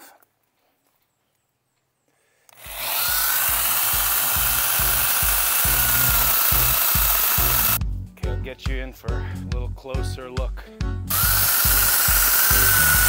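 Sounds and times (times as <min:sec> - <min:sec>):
electric chainsaw whining: 0:02.5 - 0:07.8, 0:11.1 - 0:13.0
background music with low beat: 0:03.0 - 0:13.0.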